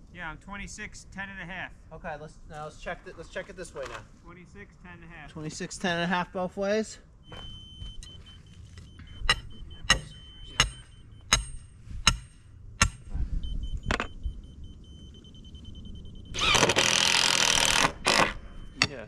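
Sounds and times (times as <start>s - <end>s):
hammer striking wood: 9.3s - 13.1s
power tool running: 16.4s - 18.4s.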